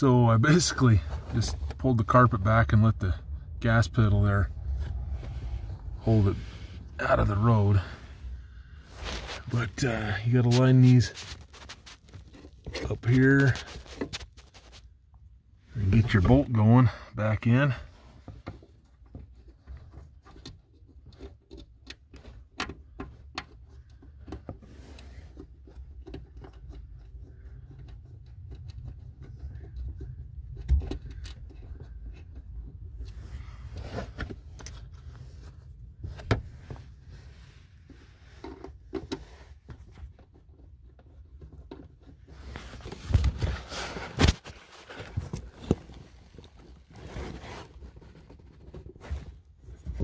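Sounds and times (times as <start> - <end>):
steady low rumble: 0.0 - 13.7.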